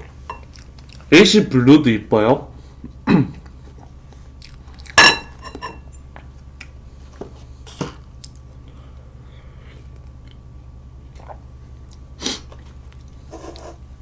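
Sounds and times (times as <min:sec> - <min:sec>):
person chewing: 0:00.0 - 0:01.1, 0:03.7 - 0:05.0, 0:06.3 - 0:06.8, 0:08.1 - 0:08.5, 0:09.7 - 0:13.3.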